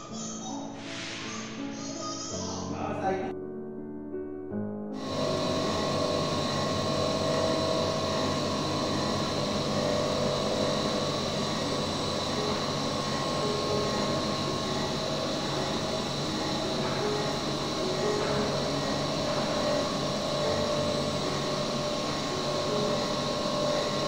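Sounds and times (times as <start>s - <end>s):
faint steady whines: 5.0s - 24.0s
lathe machine noise: 5.0s - 24.0s.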